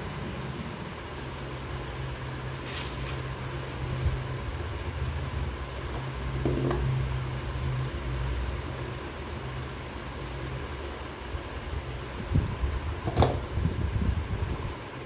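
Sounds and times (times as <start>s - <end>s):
low mechanical hum: 0.0s - 15.0s
clicks and rustles of handling wire: 2.6s - 3.4s.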